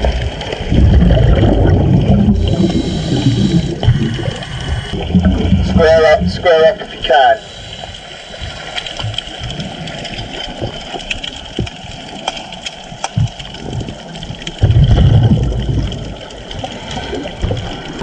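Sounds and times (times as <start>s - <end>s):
rush of churning water and bubbles: 0.0s - 18.0s
muffled underwater noise: 0.2s - 9.8s.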